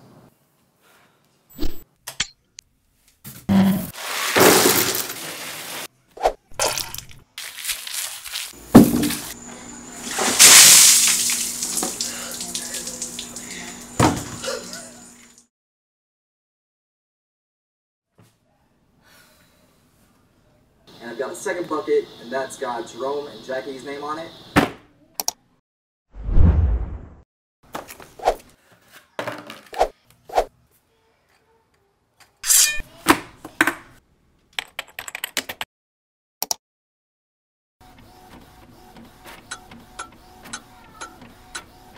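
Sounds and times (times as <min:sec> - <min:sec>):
ice water splashing: 0:04.0 - 0:05.9, 0:10.0 - 0:13.6
keyboard typing: 0:34.6 - 0:35.6.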